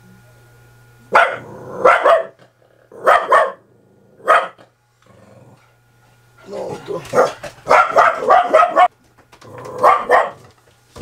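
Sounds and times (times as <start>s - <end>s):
dog barking: 1.1s - 3.6s, 4.2s - 4.7s, 7.1s - 8.9s, 9.8s - 10.5s.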